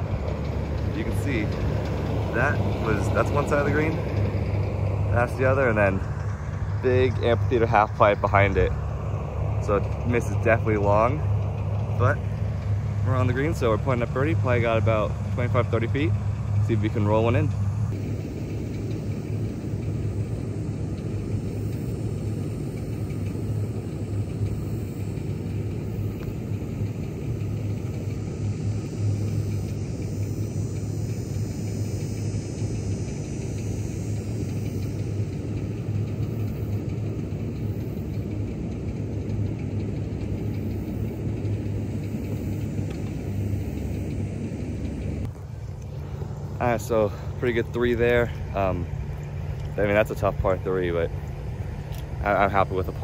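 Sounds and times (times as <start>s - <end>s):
low rumble with hum: 0.0s - 53.0s.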